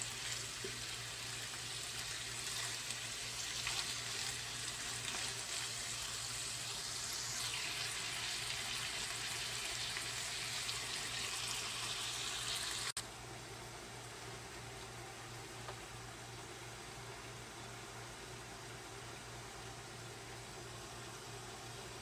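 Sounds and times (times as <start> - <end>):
meat and onions sizzling in a pan: 0.0 - 13.0.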